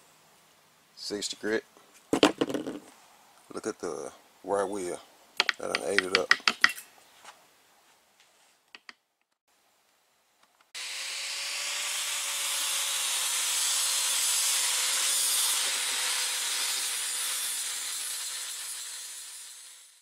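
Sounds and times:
angle grinder grinding metal: 10.8s - 20.0s.

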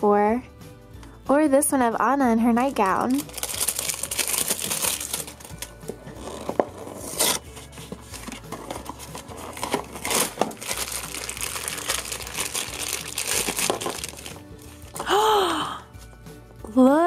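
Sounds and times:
plastic packaging crinkling: 2.7s - 15.0s
cardboard box opening: 3.2s - 15.0s.

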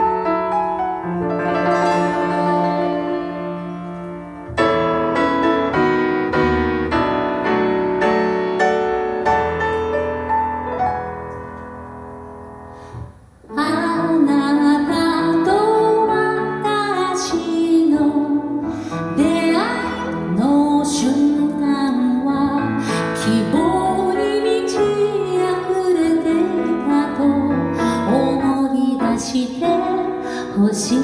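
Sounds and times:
grand piano chords: 0.0s - 31.0s
woman singing into a microphone: 13.5s - 31.0s.

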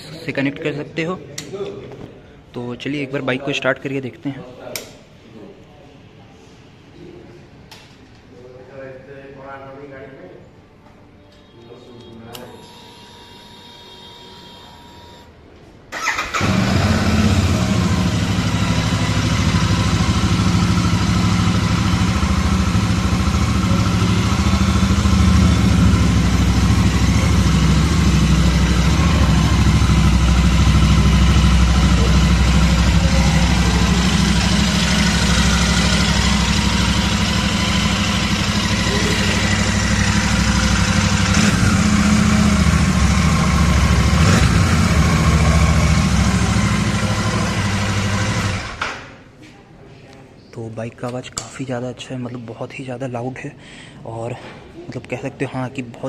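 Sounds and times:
motorcycle electric starter: 15.9s - 18.5s
motorcycle engine idling: 16.0s - 48.7s.

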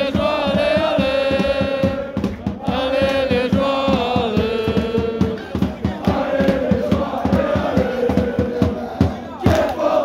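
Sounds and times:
crowd chanting in unison: 0.0s - 10.0s
hand claps: 9.5s - 9.8s.

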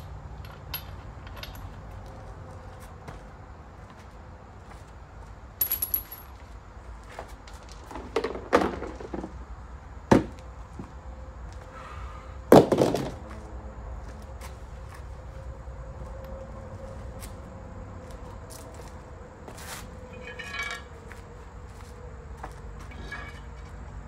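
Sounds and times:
metal tools clanking: 20.1s - 21.0s, 22.8s - 24.0s.

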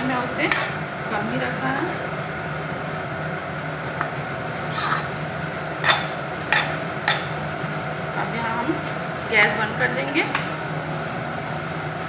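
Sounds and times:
spatula scraping a pan: 4.7s - 5.2s, 5.8s - 7.3s.

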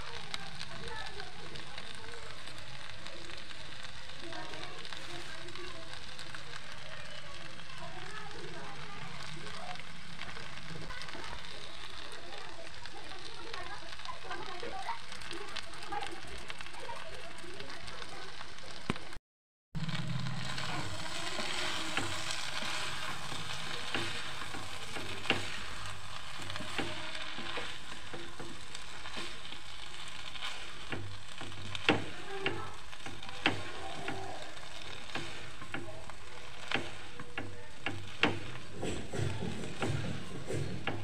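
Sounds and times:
pasta sizzling in a pan: 0.0s - 19.2s, 19.8s - 41.0s
utensil knocking against pan: 21.3s - 29.5s, 30.3s - 41.0s.

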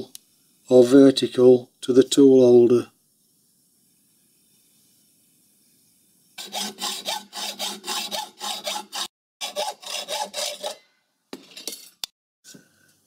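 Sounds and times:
hacksaw cutting metal bar: 6.4s - 11.5s.

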